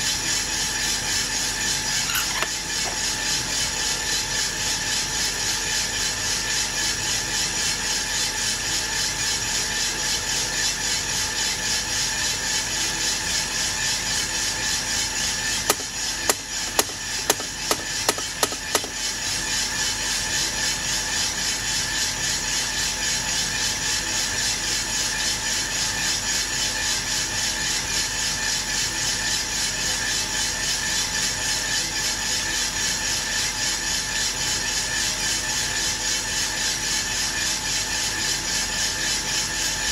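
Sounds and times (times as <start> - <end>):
coffee roaster drum rattling: 1.4 - 6.7, 14.2 - 20.1.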